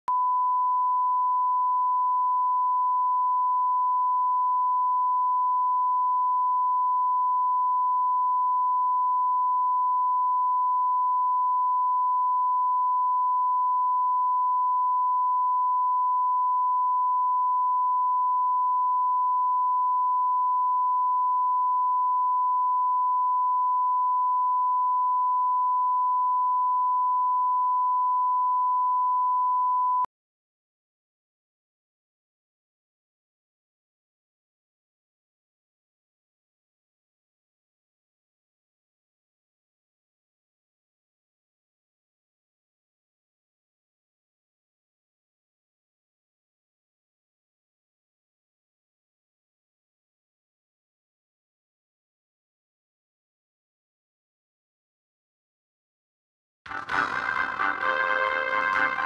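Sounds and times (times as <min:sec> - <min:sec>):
steady sine test tone: 0:00.1 - 0:30.1.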